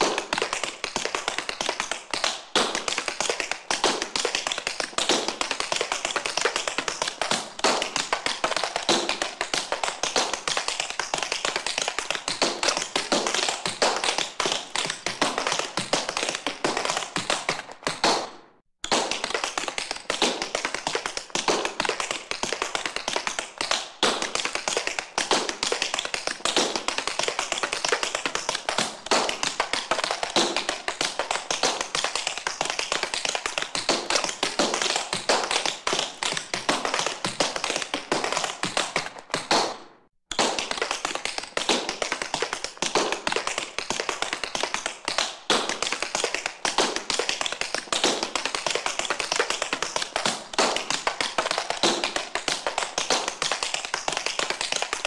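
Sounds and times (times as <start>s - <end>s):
tap shoes tapping on hard floor: 0.0s - 55.0s.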